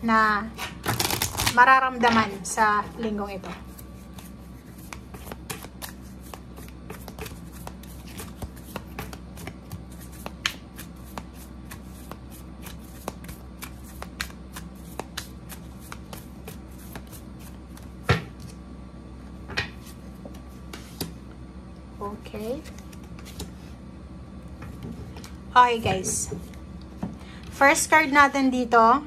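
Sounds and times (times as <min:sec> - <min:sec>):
cards being shuffled: 0:00.8 - 0:01.6, 0:03.6 - 0:18.6, 0:22.6 - 0:23.6.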